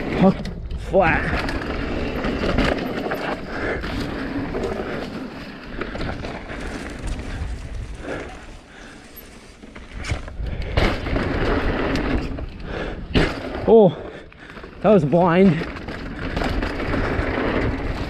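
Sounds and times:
bike tyre noise: 0:00.0 - 0:18.0
wind rush: 0:06.2 - 0:08.6.

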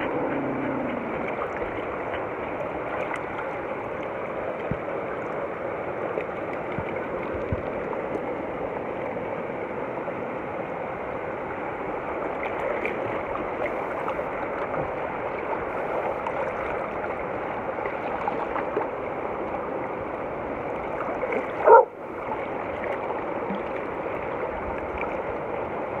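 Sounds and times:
river flowing over rocks: 0:00.0 - 0:26.0
dog bark: 0:21.6 - 0:21.9.

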